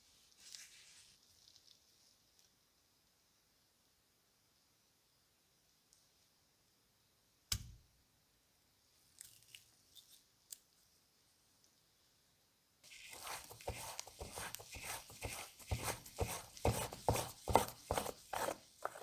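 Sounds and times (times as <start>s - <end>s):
scratchy rubbing: 12.9s - 19.0s.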